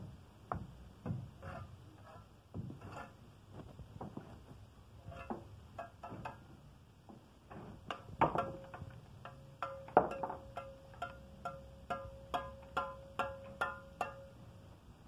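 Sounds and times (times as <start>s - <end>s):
steel trowel tapping on bricks: 5.0s - 6.5s, 7.5s - 14.4s.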